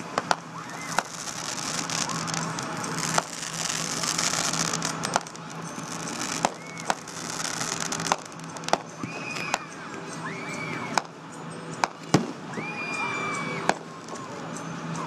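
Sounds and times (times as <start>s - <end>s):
firework shells bursting: 0.0s - 9.7s, 13.7s - 14.2s
fireworks hissing and crackling: 0.0s - 11.2s, 11.8s - 14.4s.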